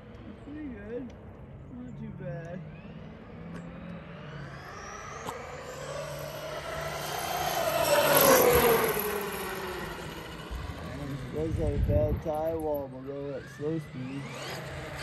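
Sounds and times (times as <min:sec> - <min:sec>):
rc truck motor whine passing: 0:02.4 - 0:15.0.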